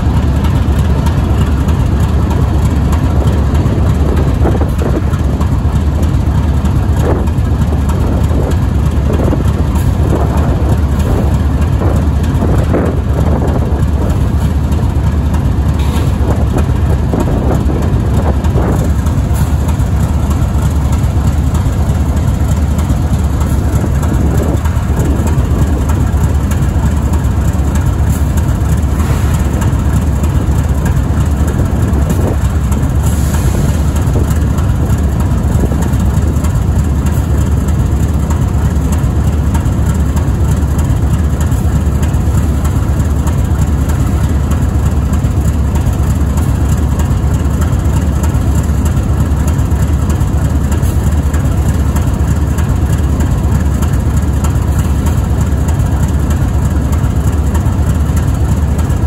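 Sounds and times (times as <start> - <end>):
locomotive diesel engine idling: 0.0 - 59.0.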